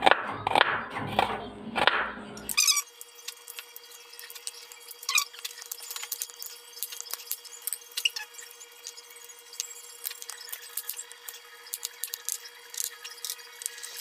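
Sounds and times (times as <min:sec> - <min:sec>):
garlic skins crackling: 0:02.9 - 0:14.0.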